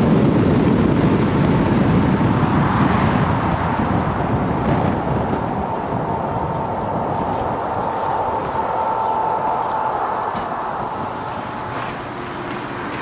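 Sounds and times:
low engine rumble: 0.0 - 13.0
road and tyre noise: 0.0 - 13.0
thin steady whine: 5.6 - 13.0.

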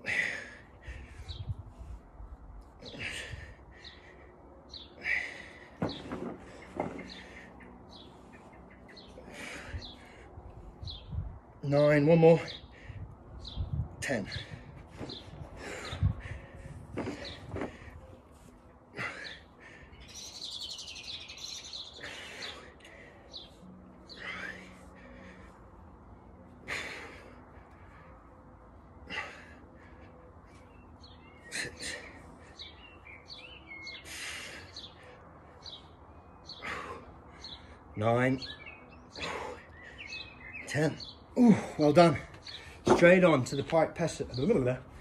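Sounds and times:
birds chirping: 0.0 - 45.0.

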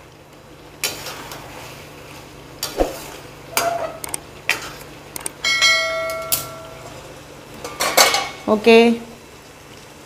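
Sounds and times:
bell-like ringing tone: 5.4 - 6.8.

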